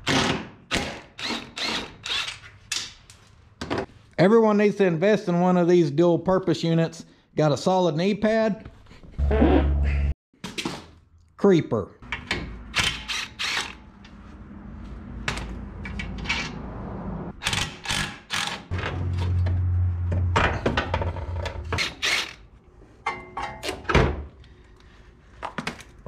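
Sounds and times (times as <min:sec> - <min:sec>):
clanks of hand tools and metal: 0:23.0 - 0:23.9.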